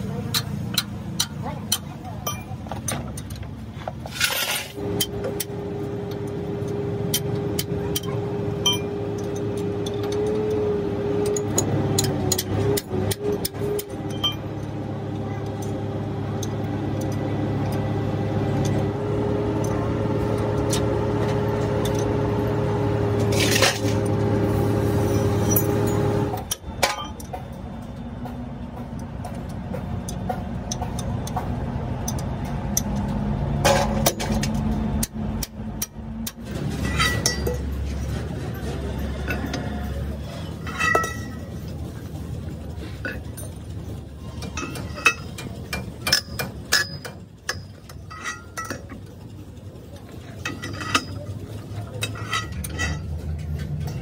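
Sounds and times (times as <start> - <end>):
spanners clinking on metal: 6.7 - 14.8, 25.2 - 54.0.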